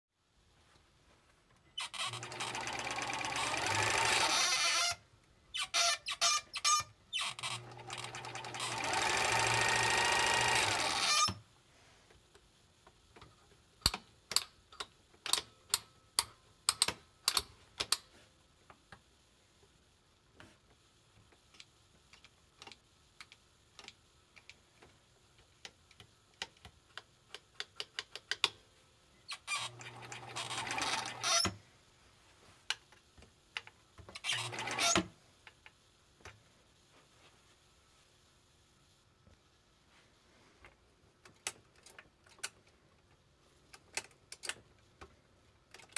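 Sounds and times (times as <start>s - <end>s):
sewing machine running: 2.0s - 4.6s, 7.4s - 11.3s, 29.7s - 31.4s, 34.3s - 35.0s.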